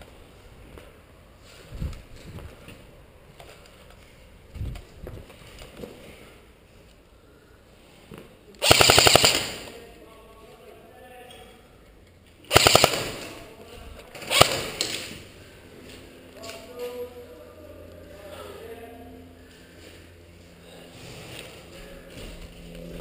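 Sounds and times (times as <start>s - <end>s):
airsoft gun full-auto bursts: 8.6s - 9.8s, 12.5s - 13.4s, 14.2s - 15.2s.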